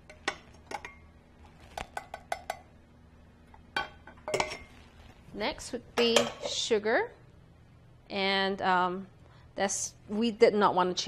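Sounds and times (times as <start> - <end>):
metal bowls clinking: 0.0 - 2.7, 3.8 - 4.8, 6.0 - 6.6.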